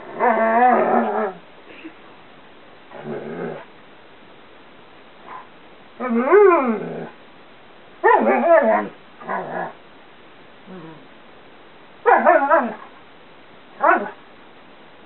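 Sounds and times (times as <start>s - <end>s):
dog growling: 0.0s - 1.4s, 2.9s - 3.7s, 6.0s - 7.2s, 8.1s - 9.8s, 10.7s - 11.1s.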